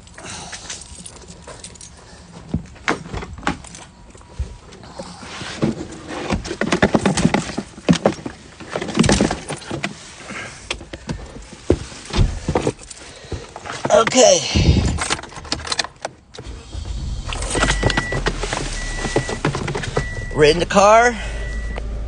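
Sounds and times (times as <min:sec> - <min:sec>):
keys jangling: 0:00.0 - 0:02.2
rustling and handling knocks: 0:05.4 - 0:20.4.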